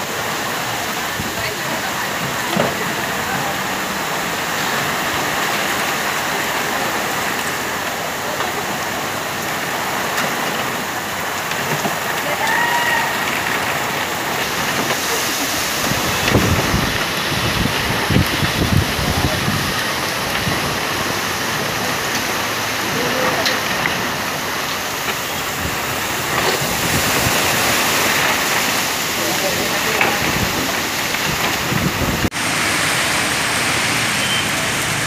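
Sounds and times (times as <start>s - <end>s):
heavy rain pouring on street: 0.0s - 35.0s
brief high tone: 34.1s - 34.6s.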